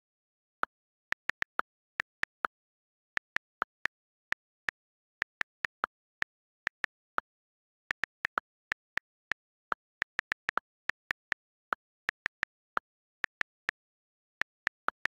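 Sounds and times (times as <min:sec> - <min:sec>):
phone keyboard clicks: 0:00.1 - 0:15.0.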